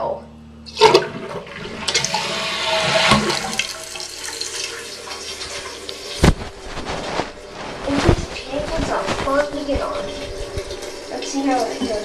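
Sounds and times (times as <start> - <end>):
toilet flush knock: 0.7 - 6.4
water rushing out of toilet tank: 0.7 - 6.4.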